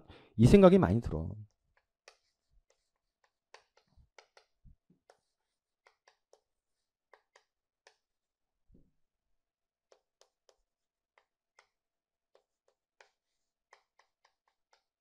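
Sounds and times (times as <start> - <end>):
chalk tapping and scratching: 1.5 - 8.3, 9.8 - 15.0.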